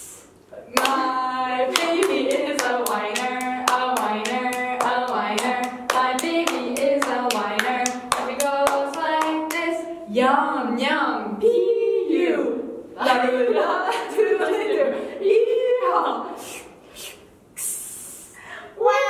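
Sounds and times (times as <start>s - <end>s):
hands clapping in rhythm: 0.7s - 9.8s.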